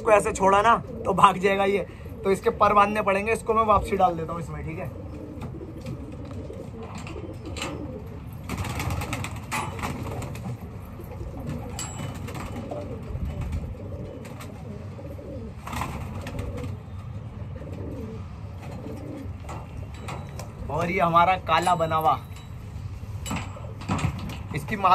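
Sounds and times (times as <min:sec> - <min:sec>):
pigeons cooing: 0:00.0 - 0:20.7
wire cage rustling and knocking: 0:23.2 - 0:24.7.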